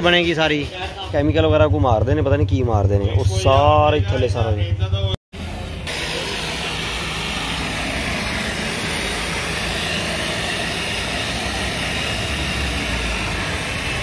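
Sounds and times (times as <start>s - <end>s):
electric rotary polisher running: 5.9s - 14.0s.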